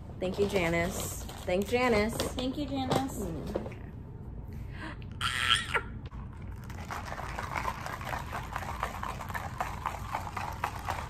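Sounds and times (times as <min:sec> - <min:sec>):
ice rattling in plastic cup: 0:06.4 - 0:11.0.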